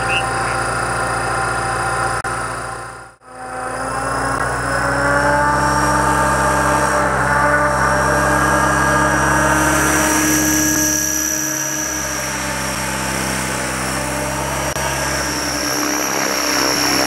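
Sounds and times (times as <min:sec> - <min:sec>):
rc helicopter motor whining: 0:00.0 - 0:17.0
rotor spinning: 0:07.7 - 0:17.0.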